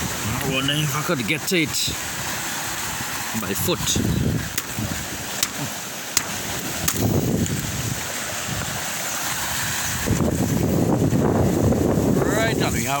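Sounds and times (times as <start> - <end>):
wind on microphone: 0.0 - 0.8, 1.9 - 13.0
waves washing over rocks: 0.0 - 13.0
dry twigs snapping underfoot: 4.5 - 5.6, 6.2 - 7.7.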